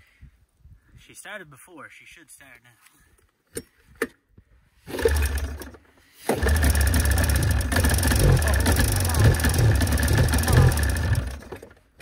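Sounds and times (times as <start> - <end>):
snowmobile engine starting: 4.8 - 12.0.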